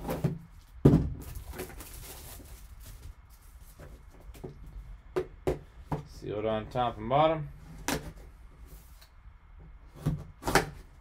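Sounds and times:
tape and box crinkling: 0.1 - 4.4.

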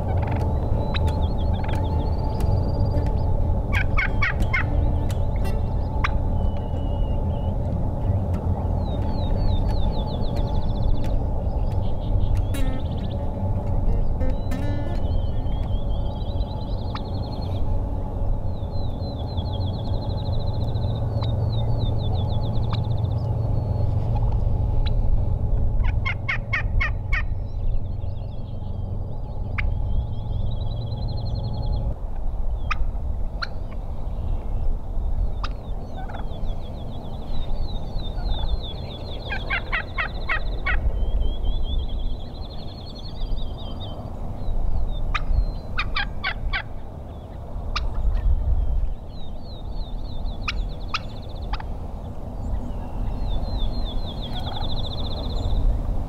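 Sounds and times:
steady low rumble: 0.0 - 56.0
turkey gobbling: 3.1 - 7.4, 25.8 - 27.3, 35.4 - 36.3, 39.3 - 40.8, 45.1 - 46.7, 50.4 - 51.7, 54.3 - 54.6.

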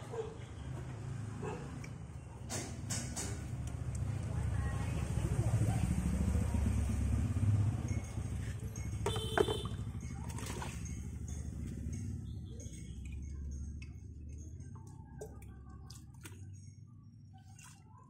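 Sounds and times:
water dripping into basin: 3.4 - 5.2, 6.1 - 16.8
ceramic pot clinking: 7.9 - 14.5.

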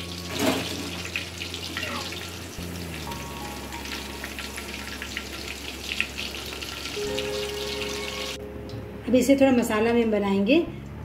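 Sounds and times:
chicken sizzling in hot oil: 0.0 - 8.4.

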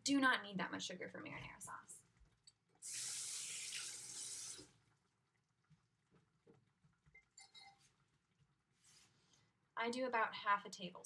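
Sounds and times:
kitchen tap running: 2.6 - 7.4.

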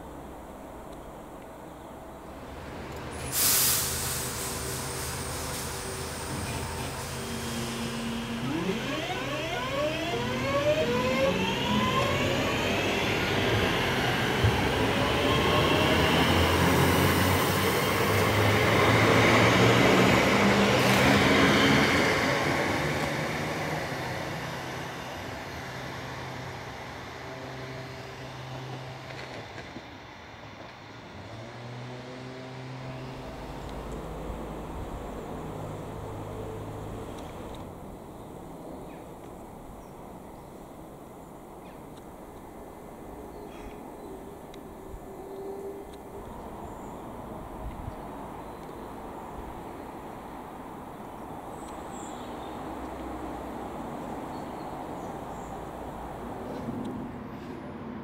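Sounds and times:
train wheels on rails: 2.4 - 37.8
electric train motor whine: 6.1 - 16.7.

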